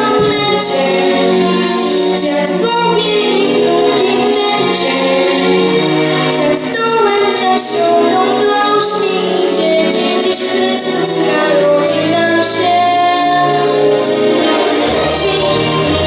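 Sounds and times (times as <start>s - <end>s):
girl singing pop song: 0.0s - 1.2s, 6.4s - 13.6s
instrumental accompaniment with bass: 0.0s - 10.4s, 11.3s - 16.0s.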